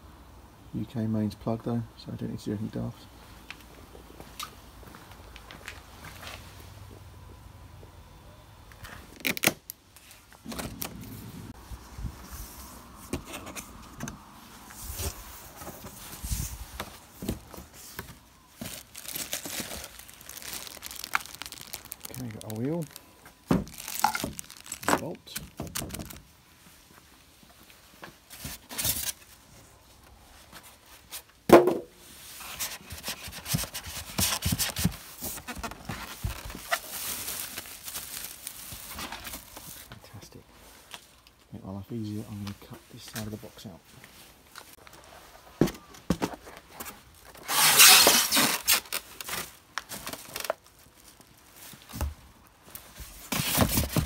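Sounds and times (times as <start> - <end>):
cardboard rustling and scraping: 10.0 - 26.2, 32.1 - 39.9, 44.1 - 50.7, 51.5 - 54.0.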